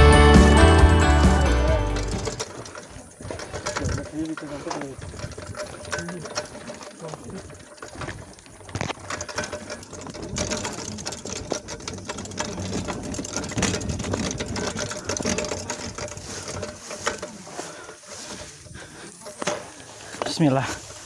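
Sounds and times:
bike freehub ticking: 0.0 - 21.0
tyres and footsteps on stones: 1.7 - 21.0.

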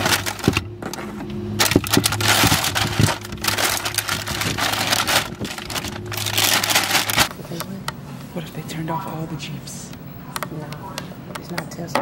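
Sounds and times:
cables rustling and rubbing: 0.0 - 7.7
low hum: 0.0 - 10.4.

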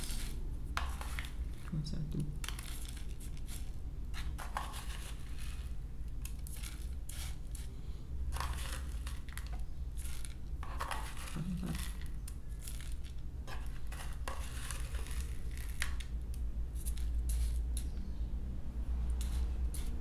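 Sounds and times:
spoon scraping plastic tub: 0.0 - 1.7, 2.4 - 7.7, 8.3 - 16.1, 16.8 - 17.9.

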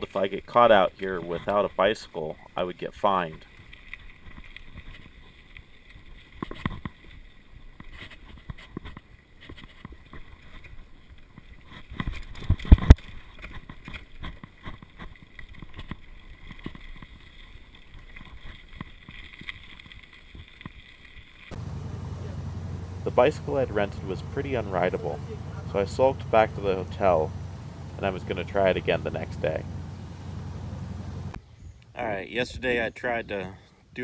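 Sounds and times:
mountain bike rattling: 9.7 - 31.4.

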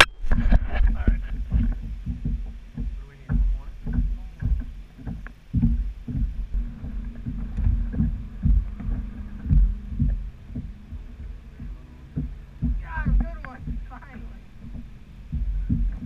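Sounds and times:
low rumble: 0.0 - 16.0
waves slapping kayak hull: 0.0 - 16.0.

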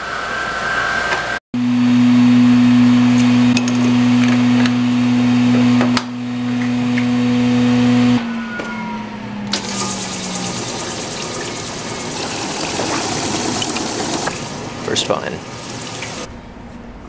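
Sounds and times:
machine winding down: 9.5 - 16.3
machine electric hum: 9.5 - 17.0
water spraying hiss: 9.6 - 16.3.

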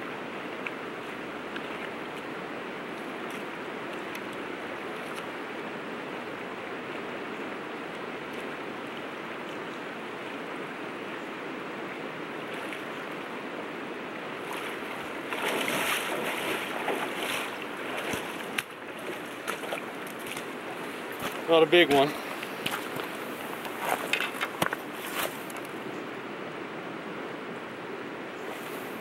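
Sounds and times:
river water rushing: 0.0 - 29.0
splashing from wading legs: 14.4 - 23.3.

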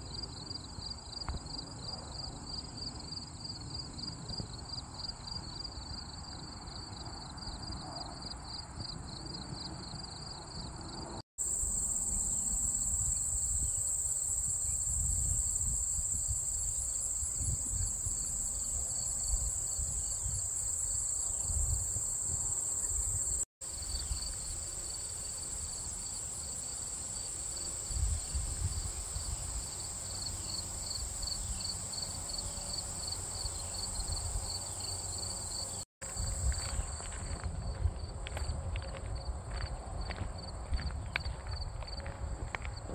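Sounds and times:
crickets chirping: 0.0 - 42.9
insects buzzing: 8.5 - 38.2
wind rumble on microphone: 12.4 - 23.4, 27.9 - 29.6, 36.1 - 42.9.

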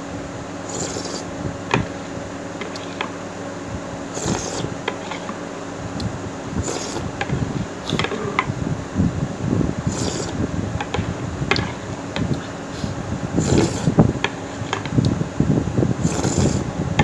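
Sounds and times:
slurping: 0.6 - 1.3, 4.1 - 5.4, 6.0 - 7.2, 7.8 - 8.4, 9.8 - 10.4, 12.3 - 14.0, 16.0 - 16.7
spoon scraping glass bowl: 0.7 - 1.3, 4.2 - 5.3, 6.6 - 7.1, 9.9 - 10.4, 12.8 - 14.0, 16.0 - 16.6.

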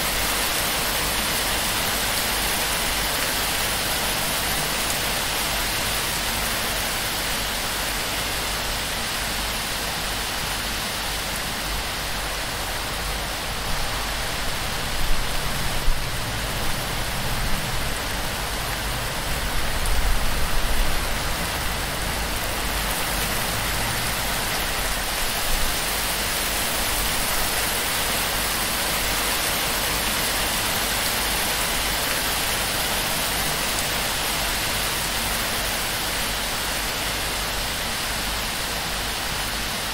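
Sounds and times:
heavy rain on thatch roof: 0.0 - 39.9.

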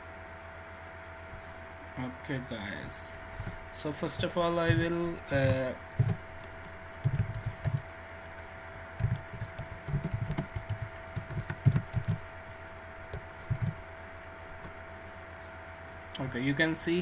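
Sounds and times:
faint hum: 0.0 - 17.0
computer keyboard keystrokes: 4.2 - 12.2, 13.1 - 13.8.

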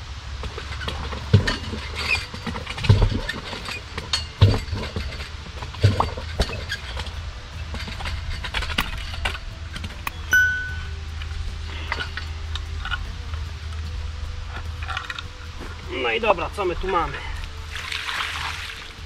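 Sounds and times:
low hum: 0.0 - 16.0
rope and pulley rattling: 0.4 - 19.0
dull thumps in well pipe: 4.4 - 7.1.

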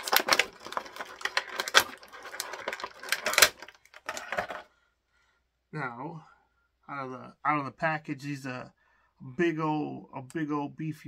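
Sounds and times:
plastic packaging crinkling: 0.0 - 4.6.

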